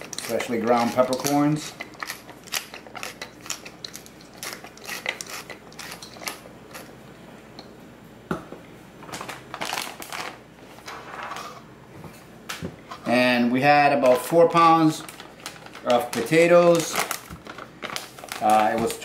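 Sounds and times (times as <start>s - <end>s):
pepper mill grinding: 0.0s - 7.0s.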